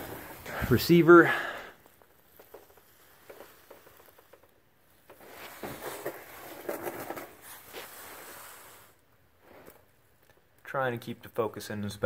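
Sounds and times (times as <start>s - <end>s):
clothing rustling and scuffing: 0.0s - 1.2s, 1.9s - 10.1s.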